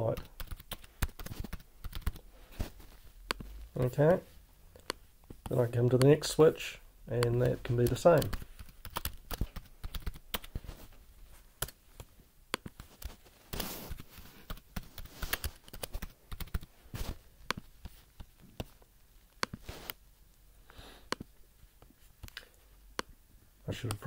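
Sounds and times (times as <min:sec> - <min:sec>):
computer keyboard typing: 0:00.0 - 0:02.2, 0:07.1 - 0:10.6, 0:13.9 - 0:16.7.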